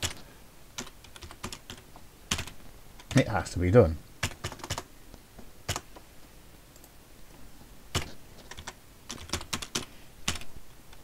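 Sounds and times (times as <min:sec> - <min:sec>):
computer keyboard typing: 0:00.0 - 0:00.2, 0:00.8 - 0:03.2, 0:04.2 - 0:04.9, 0:05.7 - 0:05.9, 0:07.9 - 0:10.5.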